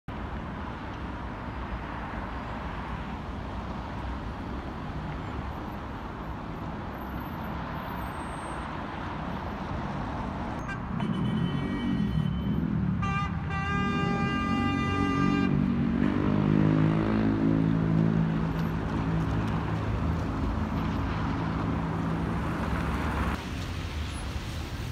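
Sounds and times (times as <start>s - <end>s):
road traffic hum: 0.1s - 24.9s
car horn: 10.6s - 15.6s.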